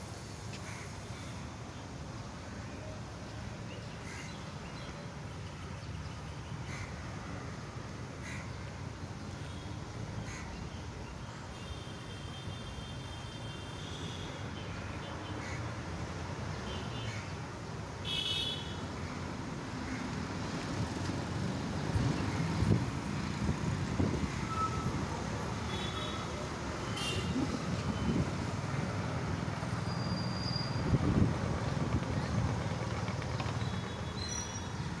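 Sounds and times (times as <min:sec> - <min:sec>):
road traffic hum: 0:00.0 - 0:35.0.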